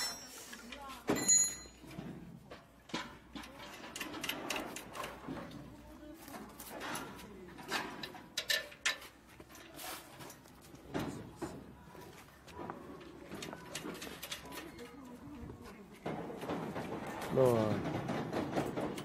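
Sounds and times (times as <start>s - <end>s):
spanners clinking on metal frame: 0.0s - 5.8s, 6.4s - 10.9s, 13.0s - 15.4s.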